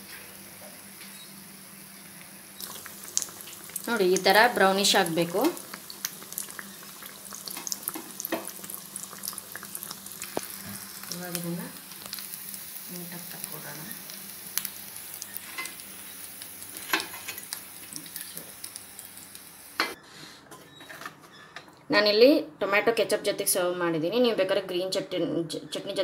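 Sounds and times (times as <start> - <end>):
bread deep-frying in hot oil: 0.0 - 19.9.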